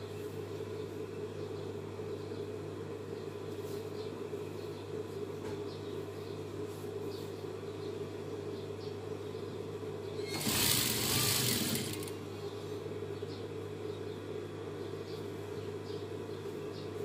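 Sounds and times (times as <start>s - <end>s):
sewing machine stitching: 10.2s - 12.2s.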